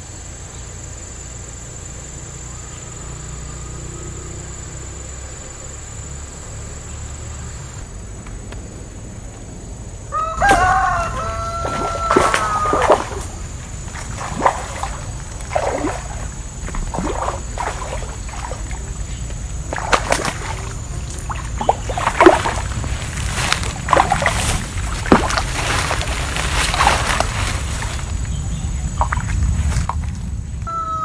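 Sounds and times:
fish splashing in water: 10.5 - 30.2.

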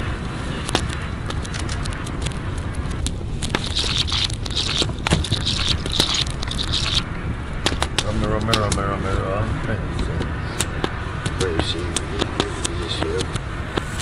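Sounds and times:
low steady rumble: 0.0 - 14.0
wood fire crackling and popping: 0.0 - 14.0
hiss: 3.4 - 7.9.

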